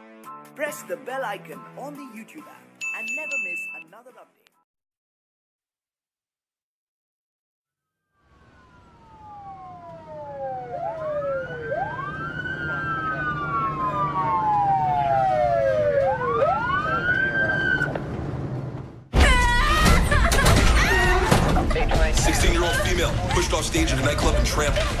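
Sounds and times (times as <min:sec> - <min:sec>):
emergency sirens wailing: 0:08.3 - 0:18.5.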